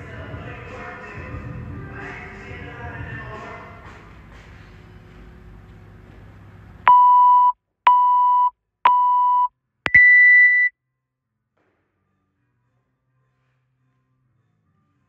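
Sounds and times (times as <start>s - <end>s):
longer higher beep: 6.9s - 10.7s
short timer beeps: 6.9s - 10.7s.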